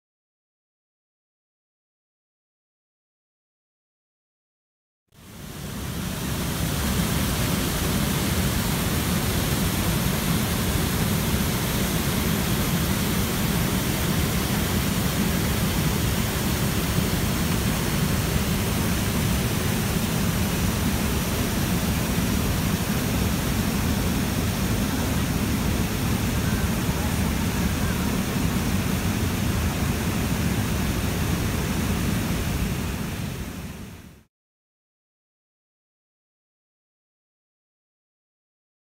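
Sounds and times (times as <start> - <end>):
waterfall rushing: 5.2 - 33.9.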